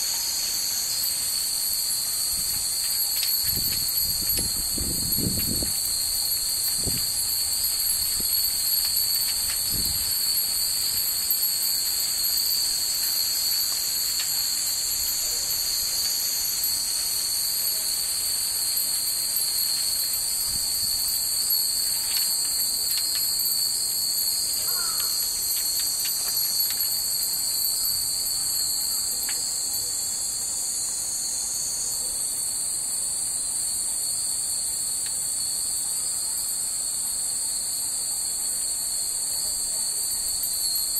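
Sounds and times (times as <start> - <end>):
wind chimes tinkling: 0.0 - 32.7, 33.5 - 40.9
cicadas buzzing: 0.0 - 40.9.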